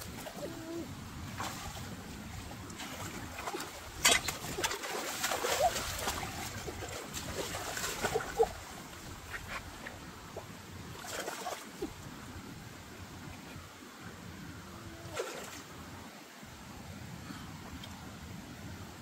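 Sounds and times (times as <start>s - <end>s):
hands splashing in muddy water: 2.7s - 9.5s
sharp splash: 2.8s - 8.8s, 11.0s - 11.9s.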